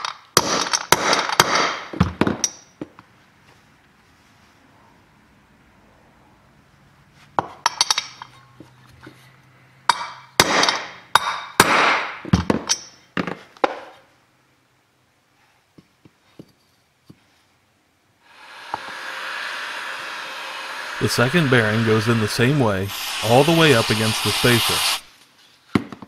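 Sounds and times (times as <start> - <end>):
heat gun blowing: 18.2 - 25.1.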